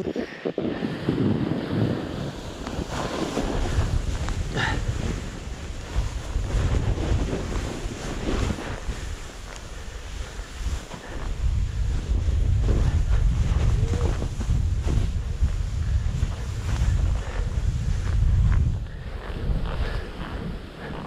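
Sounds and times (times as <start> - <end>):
snowboard sliding through snow: 0.0 - 21.0
wind buffeting microphone: 0.0 - 21.0
heavy low rumble: 11.1 - 21.0.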